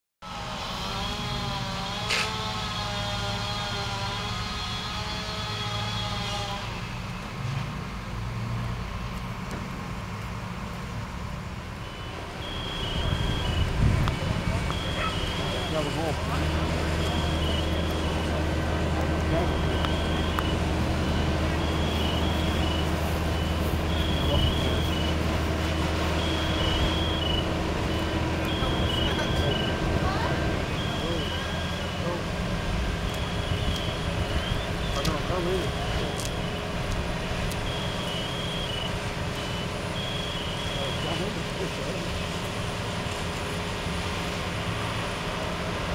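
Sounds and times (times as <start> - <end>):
truck engine running steadily: 0.2 - 45.9
high two-tone electronic beeps: 11.8 - 13.8, 14.6 - 18.4, 19.3 - 25.2, 26.2 - 29.8, 30.7 - 32.1, 33.0 - 35.1, 37.6 - 41.2.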